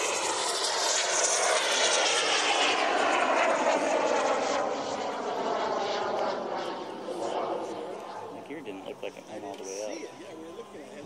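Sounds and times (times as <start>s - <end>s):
model plane motor whining: 0.0s - 8.3s.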